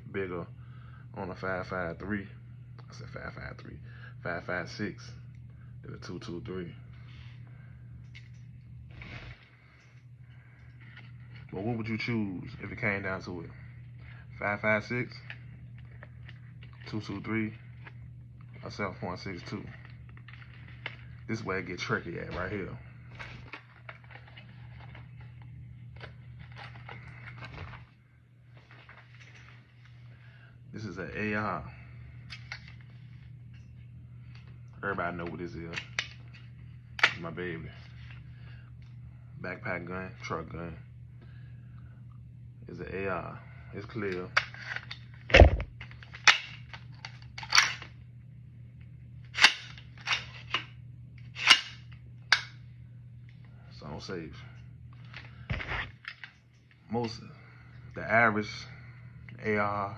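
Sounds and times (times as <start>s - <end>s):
low hum: 0.0s - 59.9s
objects clicking and scraping: 23.1s - 27.8s.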